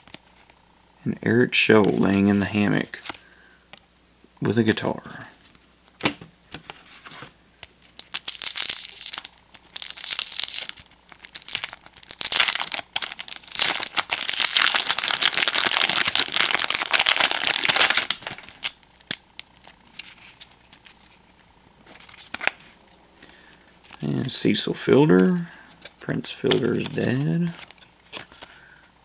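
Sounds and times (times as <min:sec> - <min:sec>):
wrapper crinkling and tearing: 0:07.7 - 0:21.2, 0:21.9 - 0:22.8.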